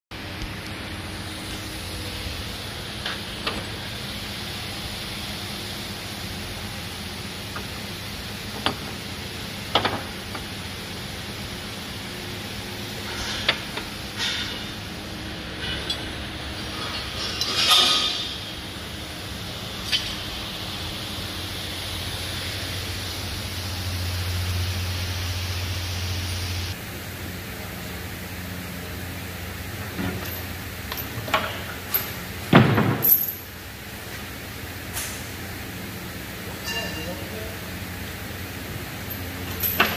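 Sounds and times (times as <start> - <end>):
machine hum: 0.1 - 39.9
hiss: 19.8 - 26.8.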